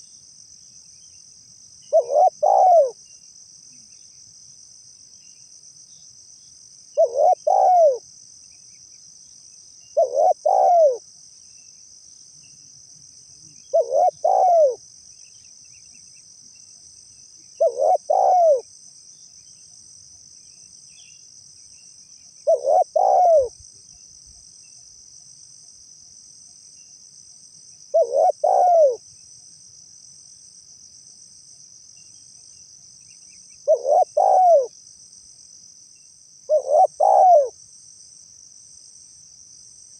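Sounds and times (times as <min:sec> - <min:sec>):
high-pitched insect sound: 0:00.0 - 0:39.9
dove cooing: 0:01.9 - 0:03.0, 0:07.0 - 0:08.0, 0:10.0 - 0:11.0, 0:13.7 - 0:14.8, 0:17.6 - 0:18.6, 0:22.4 - 0:23.6, 0:27.9 - 0:29.0, 0:33.6 - 0:34.7, 0:36.5 - 0:37.6.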